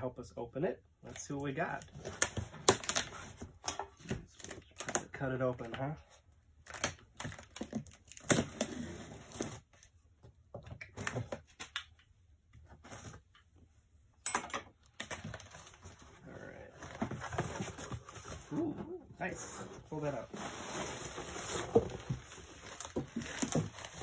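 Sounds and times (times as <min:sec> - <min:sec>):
cardboard flaps rustling open: 0:19.4 - 0:24.0.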